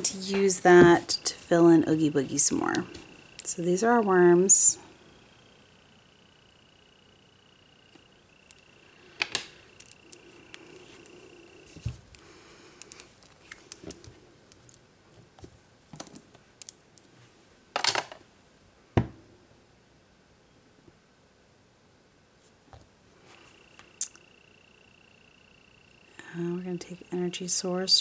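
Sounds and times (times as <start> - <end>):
faint high whine: 0.0 - 15.0, 23.0 - 28.0.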